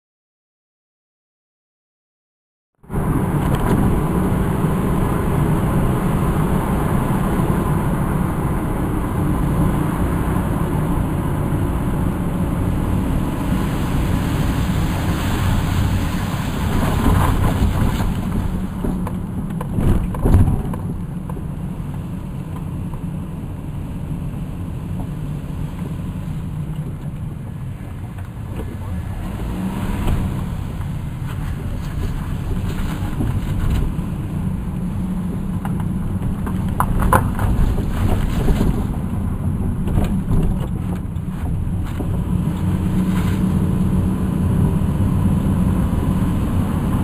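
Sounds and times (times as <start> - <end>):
car engine and tyre noise: 2.8 - 47.0.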